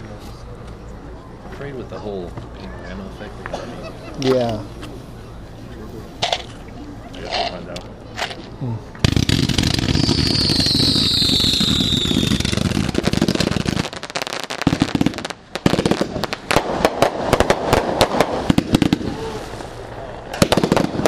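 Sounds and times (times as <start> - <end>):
firework launches rushing: 9.0 - 21.0
high falling whistle: 9.8 - 12.5.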